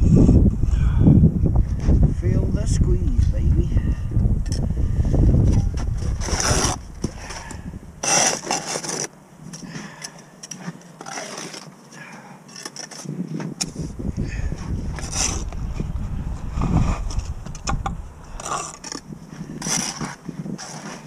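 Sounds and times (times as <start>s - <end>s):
wind rumbling on microphone: 0.0s - 8.5s, 13.0s - 21.0s
trowel scraping mortar: 5.8s - 9.1s, 10.4s - 11.8s, 14.9s - 15.6s, 18.3s - 21.0s.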